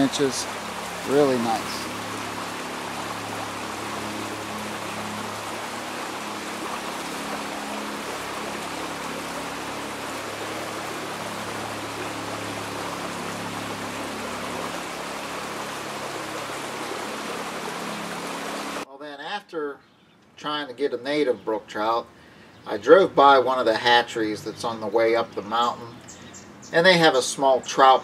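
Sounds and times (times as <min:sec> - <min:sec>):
stream babbling over rocks: 0:00.0 - 0:18.8.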